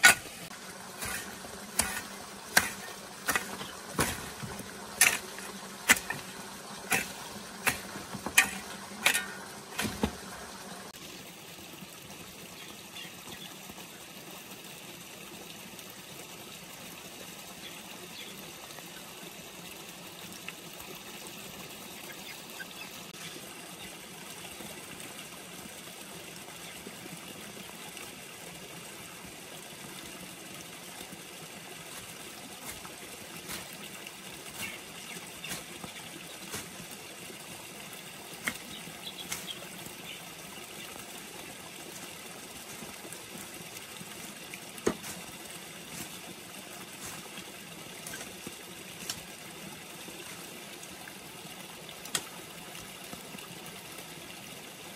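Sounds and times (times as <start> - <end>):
hoe chopping into soil: 0.0 - 10.7, 38.4 - 39.6, 44.8 - 45.3.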